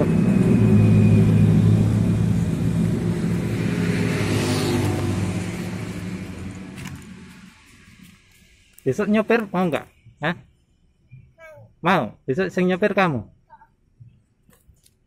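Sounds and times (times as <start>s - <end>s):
vehicle engine humming: 0.0s - 11.4s.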